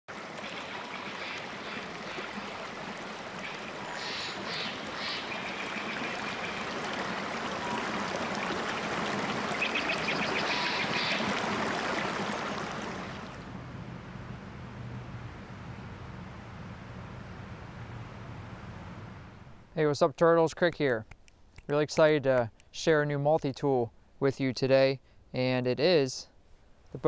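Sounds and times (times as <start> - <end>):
stream rushing and splashing: 0.1 - 13.7.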